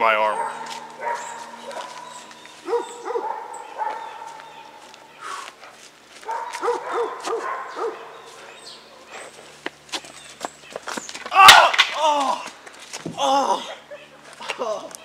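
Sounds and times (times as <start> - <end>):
dog barking: 0.3 - 4.7, 6.2 - 9.3.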